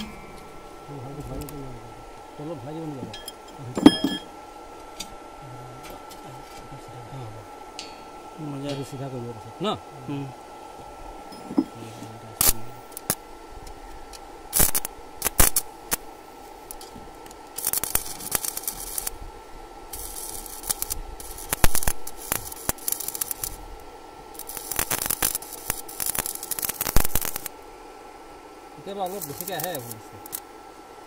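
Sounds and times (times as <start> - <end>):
welding arc crackling: 0.0 - 5.0, 12.4 - 19.2, 19.8 - 27.8, 28.8 - 30.5
welding arc popping: 0.0 - 5.0, 12.4 - 19.2, 19.9 - 27.7, 28.8 - 30.5
steady hum: 0.0 - 31.0.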